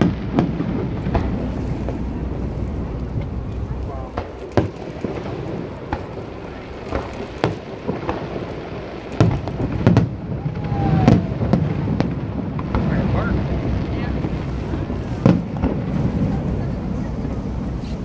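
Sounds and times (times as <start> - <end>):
low rumble: 0.0 - 7.4
fireworks bangs: 0.0 - 18.0.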